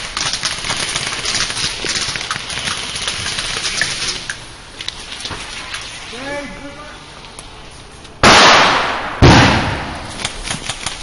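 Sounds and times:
footsteps crackling through brush: 0.0 - 4.2.

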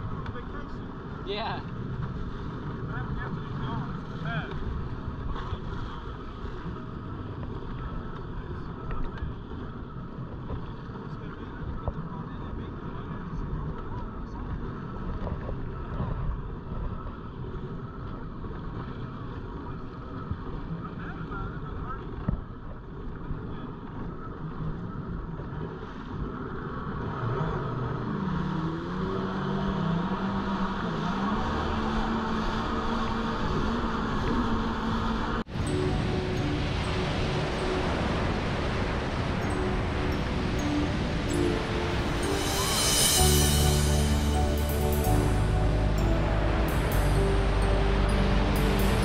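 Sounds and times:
rushing wind and water: 31.5 - 49.0.

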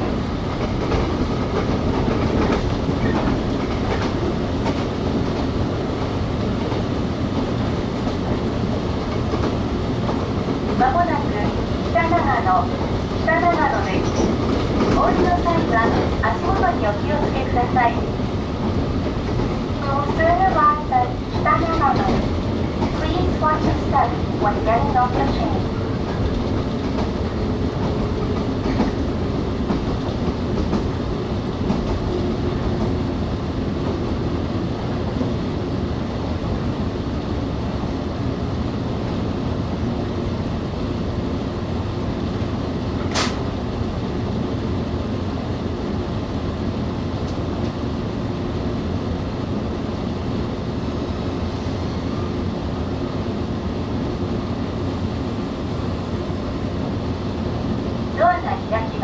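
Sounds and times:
train wheels rumbling on rails: 0.0 - 59.0
sharp click: 43.1 - 43.4.

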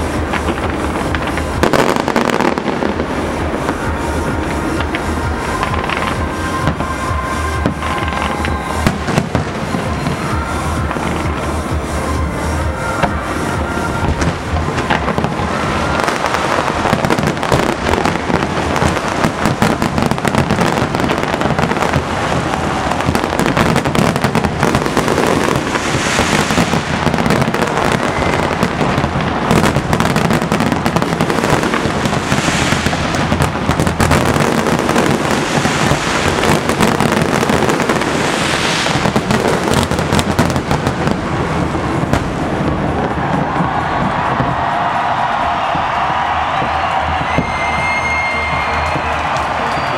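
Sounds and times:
high firework crackling: 0.0 - 49.9.

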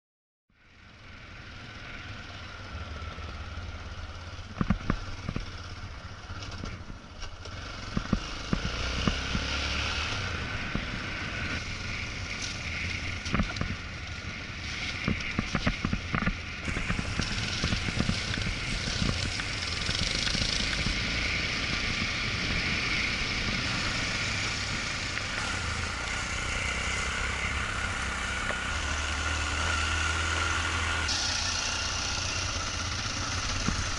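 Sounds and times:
motorcycle engine running: 0.6 - 33.9
wind noise: 8.0 - 28.2.

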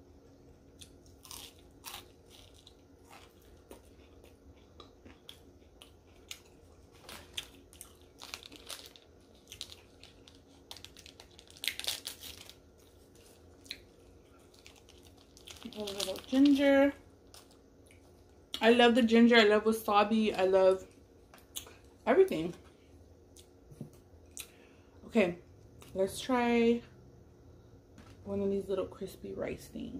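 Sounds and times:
chewing and biting food: 0.7 - 15.7.

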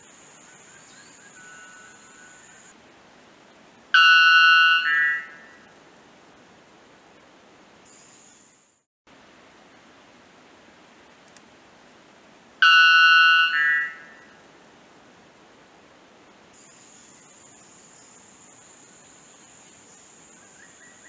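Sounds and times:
background hiss: 0.0 - 21.0
bird ringing two-part call: 4.0 - 5.4, 12.6 - 14.1
faint high-pitched tone: 4.0 - 5.7, 12.6 - 14.4.

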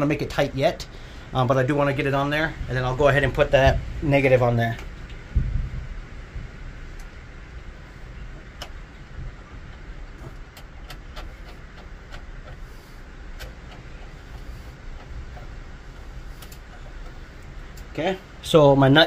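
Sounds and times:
steady low rumble: 0.0 - 19.0
small clicks and handling noise: 8.4 - 17.9.

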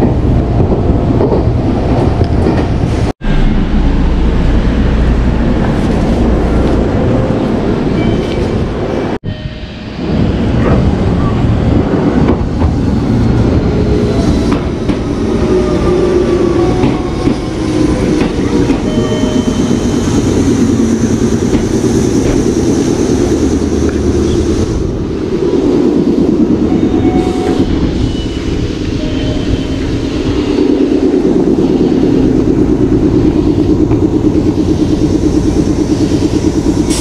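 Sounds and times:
train braking whine: 15.2 - 24.7, 26.6 - 30.8.

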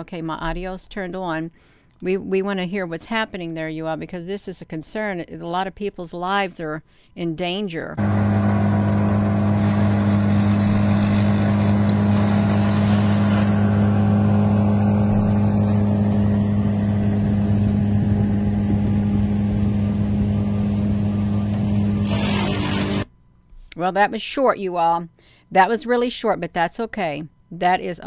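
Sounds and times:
idling engine drone: 8.0 - 23.1
broad hiss: 9.4 - 13.6.

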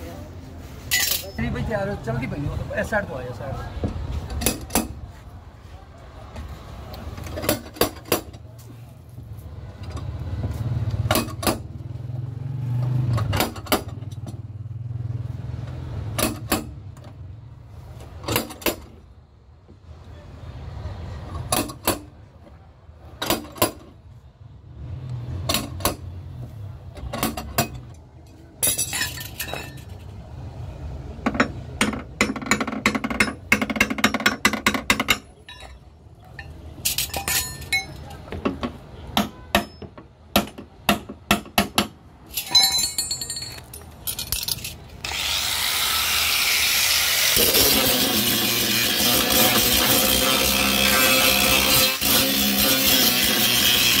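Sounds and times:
metallic taps and clinks: 42.3 - 44.8
tool scraping metal: 44.2 - 54.0.

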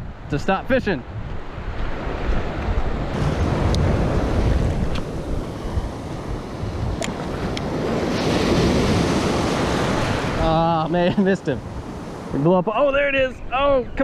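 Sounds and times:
wind buffeting microphone: 0.0 - 14.0
small surf waves breaking: 1.2 - 13.2.

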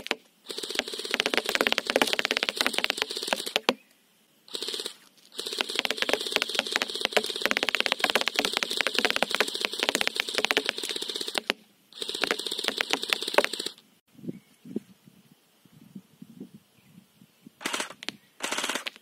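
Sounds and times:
electric gun buzz: 0.0 - 3.7, 4.5 - 13.8
pellets ticking on cardboard target: 0.0 - 3.8, 5.4 - 13.8.

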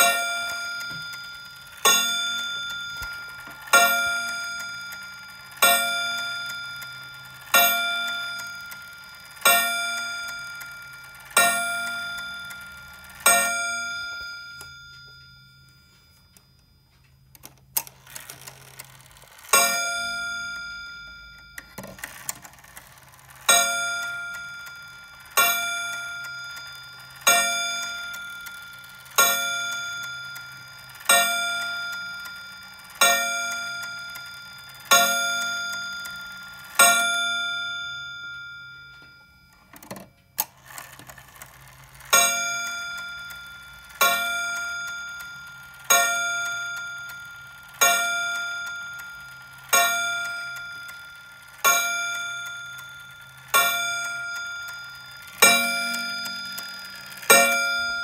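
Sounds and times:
small clock clicks: 0.0 - 58.0
clock gong strokes ringing: 42.1 - 58.0.

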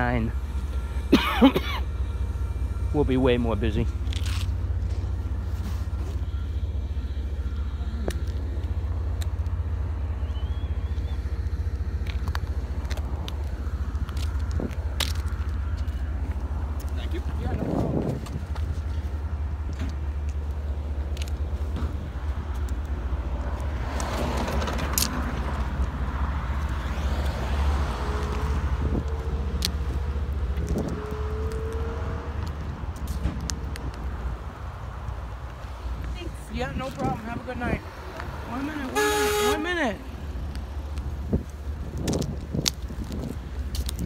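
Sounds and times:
road traffic rumble: 0.0 - 44.0
footsteps on pavement: 3.8 - 44.0
vehicle passing: 6.9 - 42.1.

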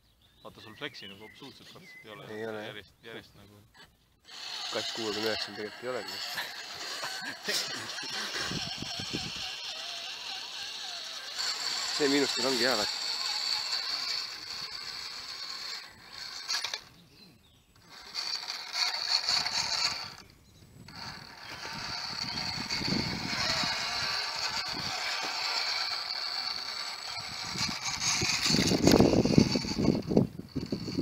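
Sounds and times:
rc truck motor whining: 4.2 - 31.0
scrabbling over rock: 20.9 - 31.0.

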